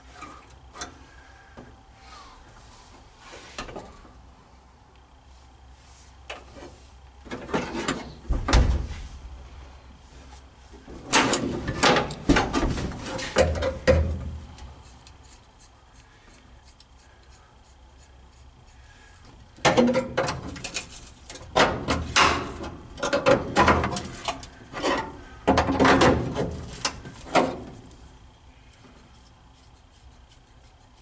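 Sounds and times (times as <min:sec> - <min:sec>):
sheet-metal repair noise: 0:19.6 - 0:27.8.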